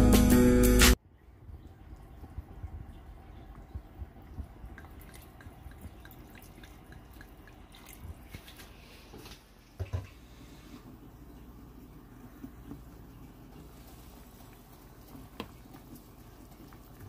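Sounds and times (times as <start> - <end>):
broth boiling with small pops: 1.4 - 17.0.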